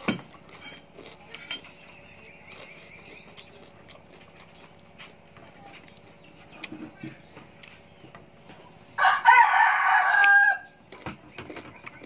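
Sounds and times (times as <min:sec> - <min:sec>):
rooster crowing: 0:09.0 - 0:10.8.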